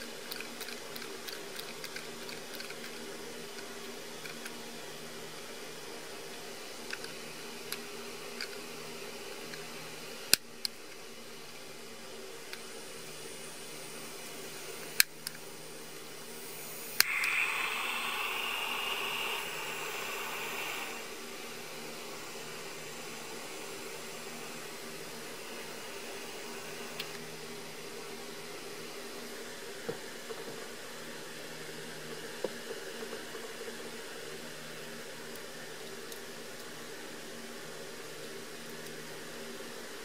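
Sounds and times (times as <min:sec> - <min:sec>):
gas hissing: 0:15.7 - 0:27.9
soldering iron igniter clicks: 0:16.9 - 0:20.9.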